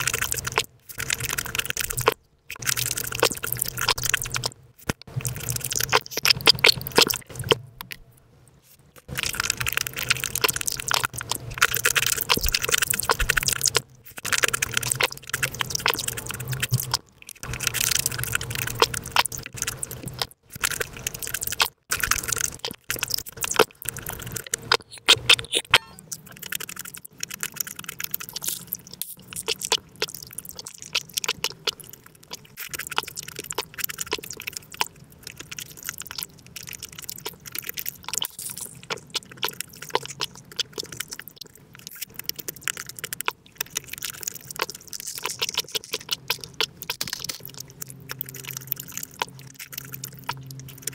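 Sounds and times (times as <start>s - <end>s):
fast eating and chewing sounds: 0.0s - 50.9s.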